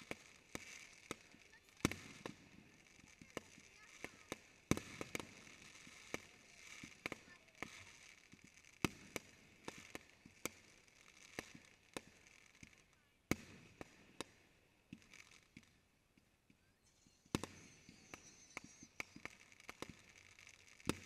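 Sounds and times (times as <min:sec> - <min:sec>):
firework shells bursting: 0:17.2 - 0:21.0.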